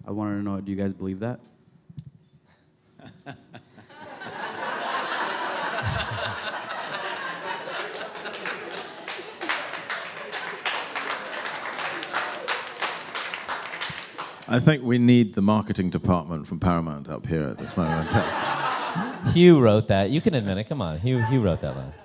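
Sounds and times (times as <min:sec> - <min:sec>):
audience laughing: 0:03.0 - 0:13.1, 0:17.6 - 0:19.6
scattered clapping: 0:07.6 - 0:14.5.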